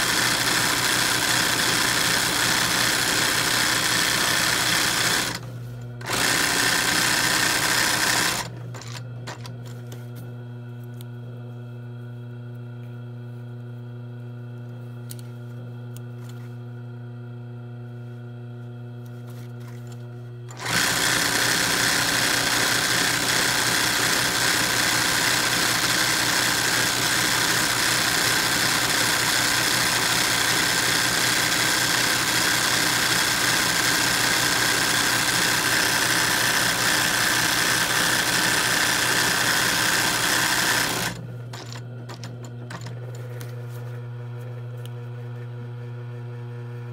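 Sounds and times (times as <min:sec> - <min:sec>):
sewing machine stitching: 0:00.0 - 0:09.5, 0:20.5 - 0:43.1.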